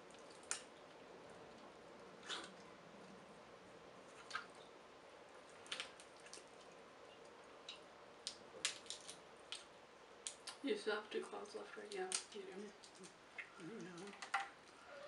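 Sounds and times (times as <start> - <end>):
wet squishing and chewing: 0.0 - 3.2, 4.0 - 4.7, 5.3 - 10.6, 12.0 - 15.0
crab shell snapping: 7.7 - 10.6.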